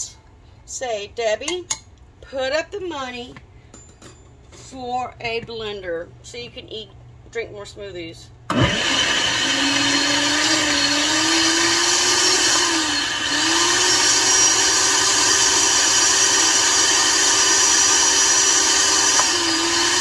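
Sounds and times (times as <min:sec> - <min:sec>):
blender motor whining: 0:08.5 - 0:20.0.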